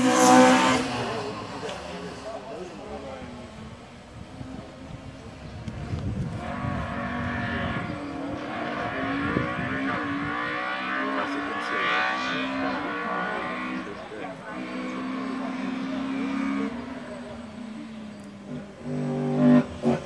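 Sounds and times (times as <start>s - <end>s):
race car engine accelerating: 0.0s - 20.0s.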